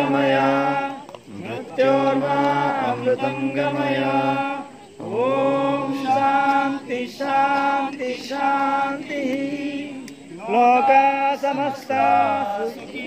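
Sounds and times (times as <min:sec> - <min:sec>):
group chanting: 0:00.0 - 0:13.0.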